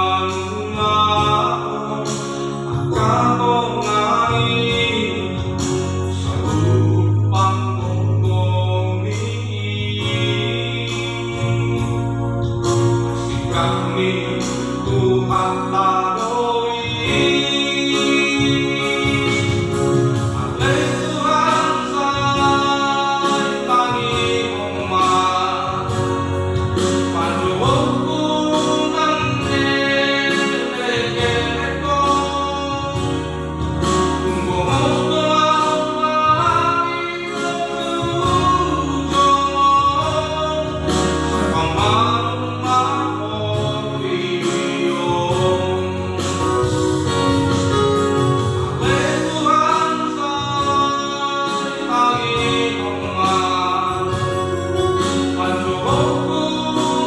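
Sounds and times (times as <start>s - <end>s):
keyboard chords and bass: 0.0s - 57.0s
man singing: 0.0s - 57.0s.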